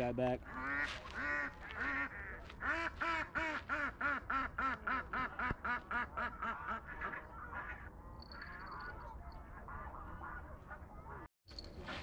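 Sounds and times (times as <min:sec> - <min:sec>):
duck quacking: 0:00.5 - 0:07.8.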